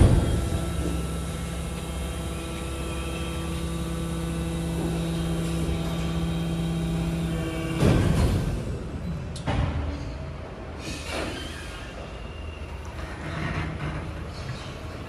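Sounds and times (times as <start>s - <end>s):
low rumble: 0.0s - 1.1s
electric truck humming: 0.0s - 7.8s.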